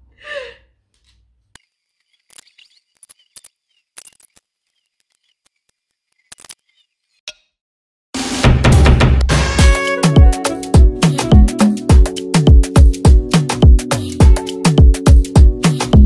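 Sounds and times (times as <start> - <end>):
loud bass-heavy music: 8.2 - 16.0.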